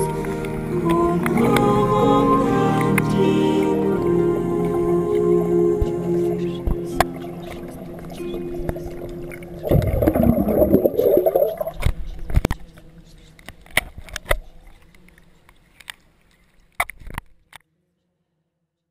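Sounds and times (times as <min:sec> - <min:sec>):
water churning and bubbling: 0:07.0 - 0:11.9.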